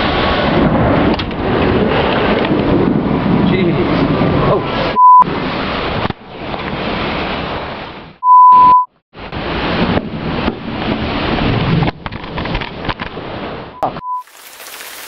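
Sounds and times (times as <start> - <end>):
wind: 0.0 - 15.0
electronic beep: 5.0 - 5.3, 8.2 - 8.9, 13.8 - 14.2
heavy rain: 13.2 - 15.0.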